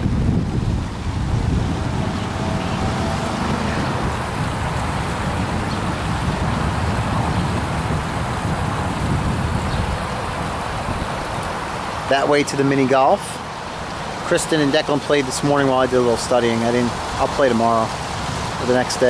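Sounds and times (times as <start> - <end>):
wind rumble on microphone: 0.0 - 12.1, 15.5 - 19.0
waterfall splashing into pond: 0.0 - 19.0.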